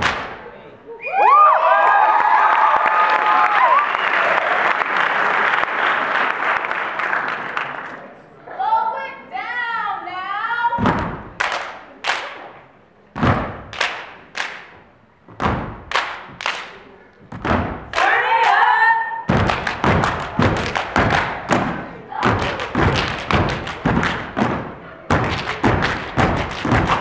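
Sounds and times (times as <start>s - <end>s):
hand claps: 0.0s - 0.4s, 11.4s - 12.5s, 13.7s - 14.8s, 15.9s - 16.8s, 19.4s - 27.0s
boot stomps on wooden stage: 15.3s - 15.9s, 17.3s - 17.9s, 19.3s - 27.0s.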